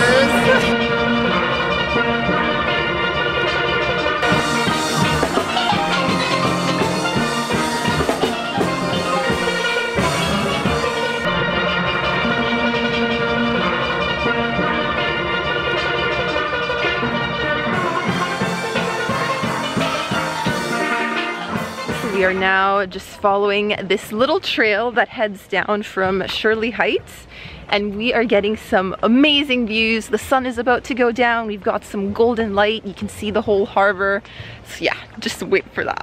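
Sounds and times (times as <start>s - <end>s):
steel pans playing a melody: 0.0s - 22.7s
drums: 0.0s - 22.9s.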